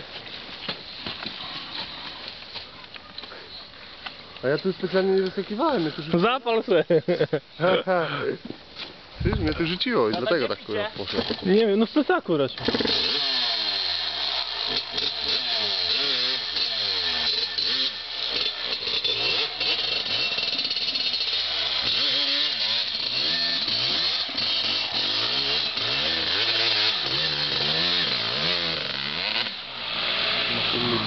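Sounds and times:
dirt bike engine revving: 12.6s - 31.0s.

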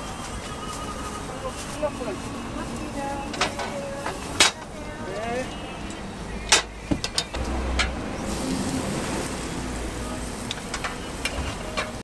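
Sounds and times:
batter sizzling in hot molds: 7.9s - 12.0s.

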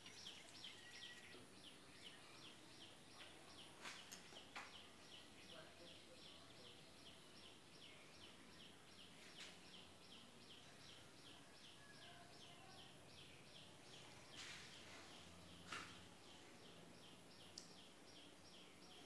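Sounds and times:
faint high chirps: 0.0s - 3.3s
low background hiss: 0.0s - 19.0s
faint click: 17.6s - 17.8s.

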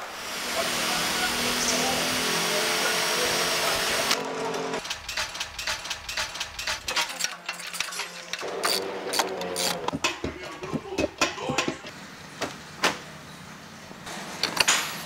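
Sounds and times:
metallic chain clicks and rattles: 4.8s - 9.8s.

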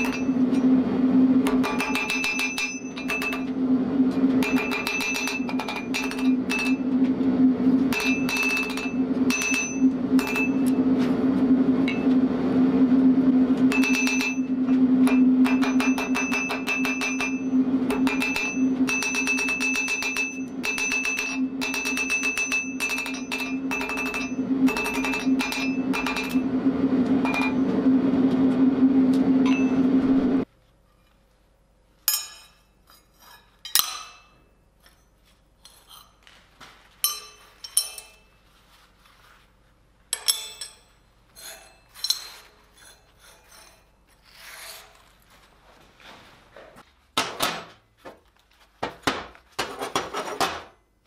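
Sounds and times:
hammer blows ringing on anvil: 0.0s - 0.7s, 1.4s - 3.5s, 4.4s - 6.9s, 7.9s - 10.8s, 13.7s - 26.5s, 27.2s - 27.7s, 29.4s - 29.9s, 37.0s - 38.3s
low hum: 0.0s - 32.8s.

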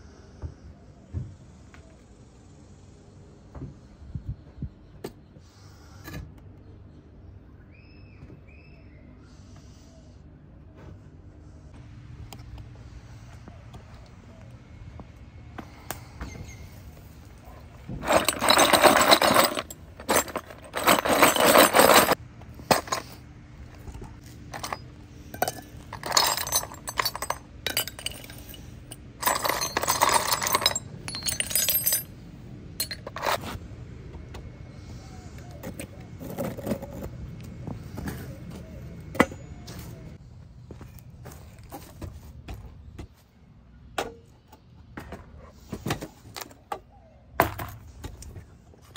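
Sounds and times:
copper pipe pieces clattering: 17.9s - 23.2s, 24.5s - 32.1s, 32.8s - 33.6s.

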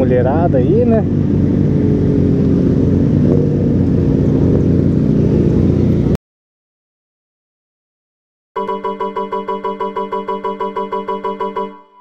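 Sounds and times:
motorcycle engine running: 0.0s - 6.2s.

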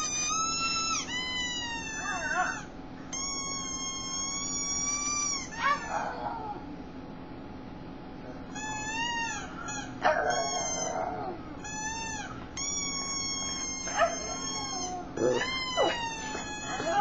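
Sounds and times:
dog yelping: 0.0s - 2.7s, 3.3s - 6.6s, 8.6s - 17.0s
dog whining and howling: 0.0s - 6.7s, 8.5s - 17.0s.

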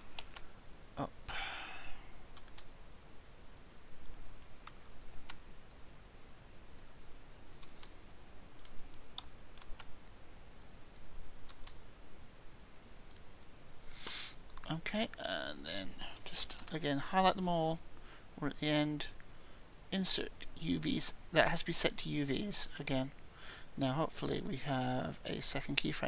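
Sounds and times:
computer mouse clicks: 0.2s - 0.8s, 2.3s - 2.7s, 4.0s - 5.8s, 7.6s - 8.0s, 8.6s - 9.9s, 10.6s - 11.8s, 13.1s - 13.5s
keyboard clicks: 2.4s - 2.7s, 7.6s - 8.0s, 8.6s - 9.9s, 10.6s - 11.8s.

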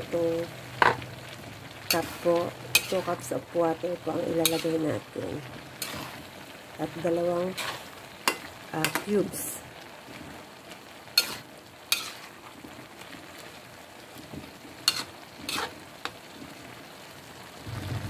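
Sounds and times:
food sizzling in a pan: 0.0s - 18.0s
spatula scraping a pan: 1.9s - 3.3s, 4.4s - 4.8s, 5.8s - 6.4s, 7.5s - 9.0s, 11.2s - 12.6s, 14.8s - 16.2s.

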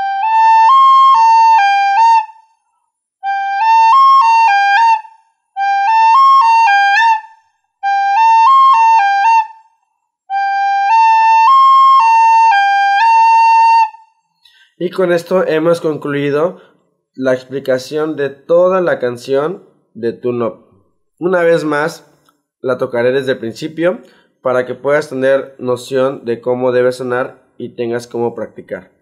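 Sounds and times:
recorder playing a short phrase: 21.2s - 22.0s.

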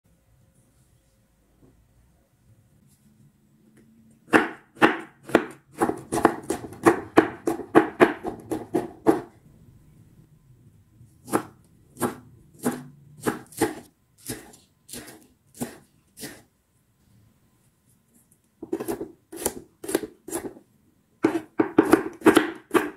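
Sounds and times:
knife chopping on wooden board: 4.3s - 9.3s, 11.2s - 16.4s, 18.6s - 20.6s, 21.2s - 22.9s.

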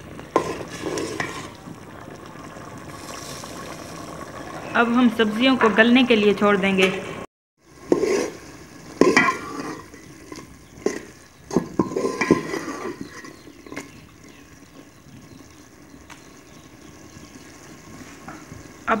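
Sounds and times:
pot simmering sizzle: 0.0s - 19.0s
metal spoon scraping a pot: 0.3s - 1.6s, 7.8s - 14.4s.

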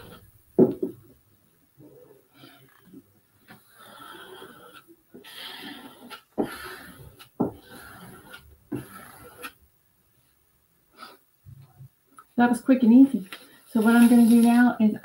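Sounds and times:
squeegee scraping on glass: 2.4s - 9.6s.

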